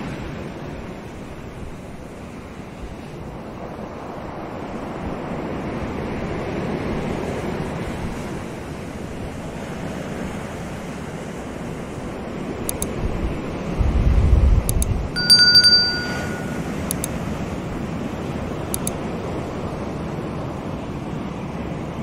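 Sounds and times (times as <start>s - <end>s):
surf washing over rocky shore: 0.0s - 14.6s
wind noise on microphone: 0.0s - 22.0s.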